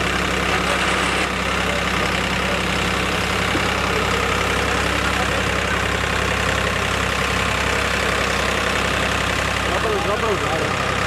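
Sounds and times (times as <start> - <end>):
tractor diesel engine idling: 0.0 - 11.0.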